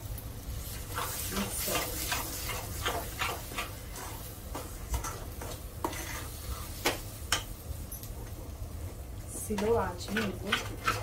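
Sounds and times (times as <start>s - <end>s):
low sizzle: 0.0s - 11.0s
spoon scraping metal pot: 0.9s - 6.7s, 9.6s - 11.0s.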